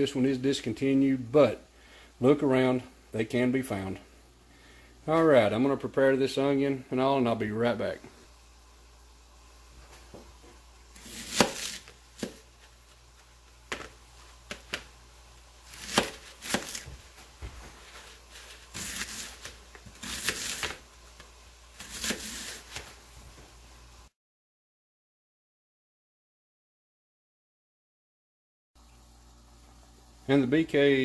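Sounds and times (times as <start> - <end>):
knife slicing onion: 10.9 - 23.1.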